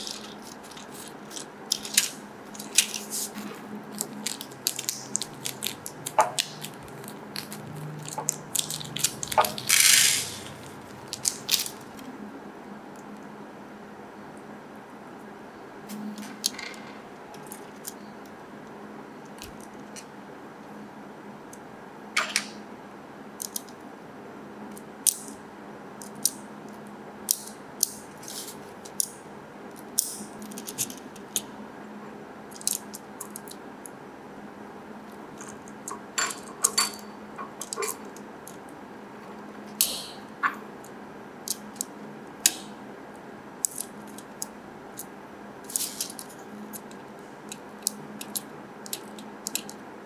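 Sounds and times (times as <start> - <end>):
faint steady hum: 0.0 - 50.0
plastic parts clicking: 45.7 - 49.8.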